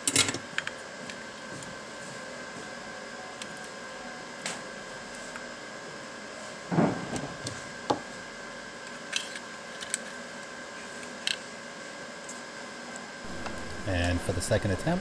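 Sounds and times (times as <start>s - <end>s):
faint steady hum: 12.8s - 15.0s
high whine: 13.2s - 15.0s.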